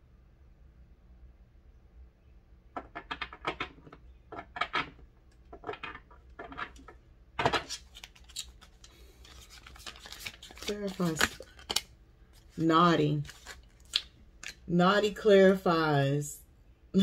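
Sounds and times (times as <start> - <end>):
cards being shuffled: 5.6 - 14.6.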